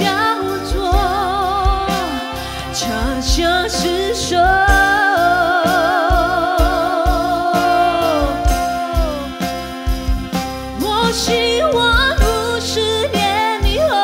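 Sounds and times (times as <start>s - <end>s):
band accompaniment: 0.0s - 14.0s
woman singing pop ballad: 0.0s - 14.0s.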